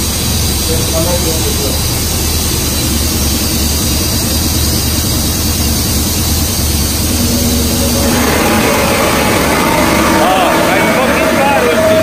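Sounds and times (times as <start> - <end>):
loud even rushing noise: 6.4 - 12.0.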